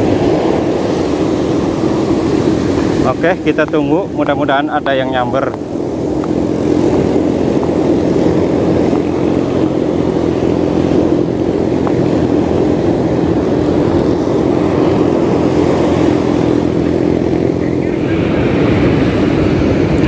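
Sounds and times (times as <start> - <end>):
low hum: 0.0 - 20.0
surf breaking: 0.0 - 20.0
wind buffeting microphone: 0.0 - 20.0.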